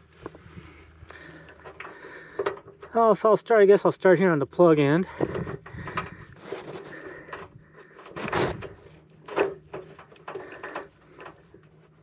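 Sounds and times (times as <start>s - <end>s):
tape pulled off roll: 5.3s - 11.6s.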